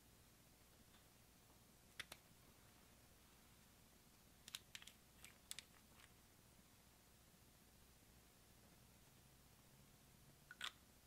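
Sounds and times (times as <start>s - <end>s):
small containers clicking: 4.4s - 6.2s.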